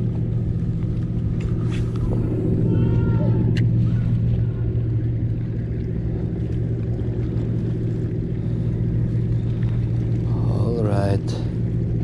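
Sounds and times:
engine running with low hum: 0.0s - 12.0s.

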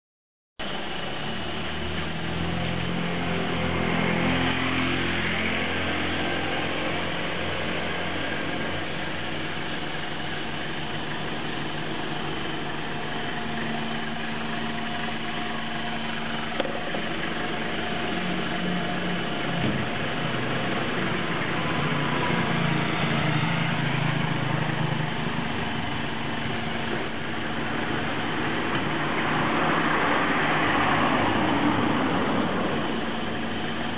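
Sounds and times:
vehicle engine idling: 0.6s - 33.9s
traffic passing: 1.7s - 11.4s, 12.0s - 33.9s.

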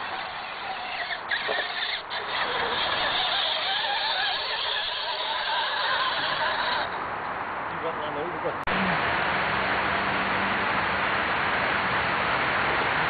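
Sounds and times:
electric motor and gears whining: 0.0s - 7.0s.

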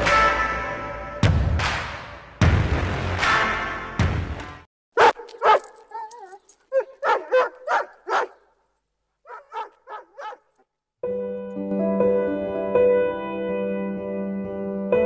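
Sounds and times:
dog whining: 5.0s - 8.3s, 9.3s - 10.4s
dog barking: 5.0s - 8.5s, 9.2s - 10.6s.

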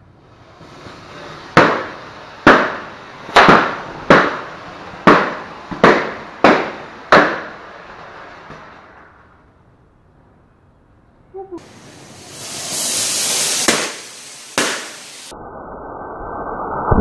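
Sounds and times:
rocket motor hissing: 0.2s - 8.8s, 11.6s - 15.3s
balloons bursting: 0.6s - 8.8s, 11.6s - 15.3s.

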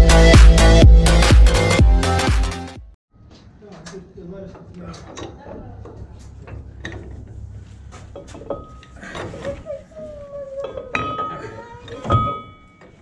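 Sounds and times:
metal clanks and knocks: 3.8s - 9.7s, 10.5s - 13.0s.

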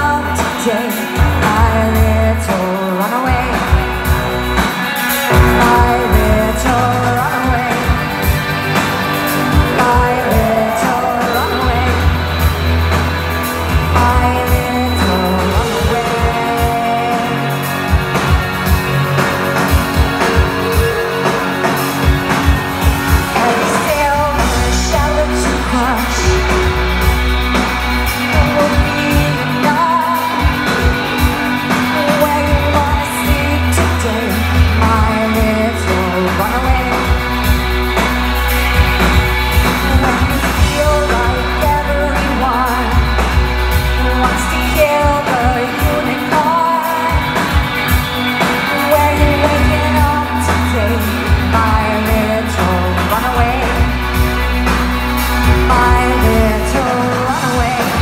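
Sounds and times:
woman singing: 0.0s - 8.5s, 9.4s - 12.7s, 13.7s - 18.7s, 19.6s - 22.4s, 23.2s - 37.5s, 39.0s - 54.0s, 55.4s - 58.0s
drum beat: 3.3s - 25.1s
synthesizer bass line: 3.3s - 31.7s.

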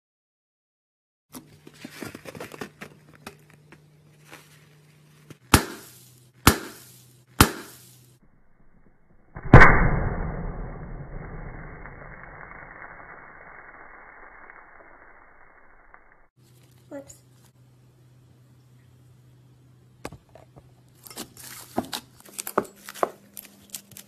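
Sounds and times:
slime burst: 9.4s - 16.3s.

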